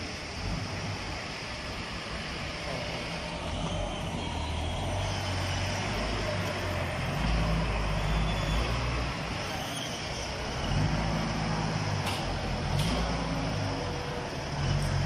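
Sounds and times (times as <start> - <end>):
forklift engine rumbling: 0.0 - 15.0.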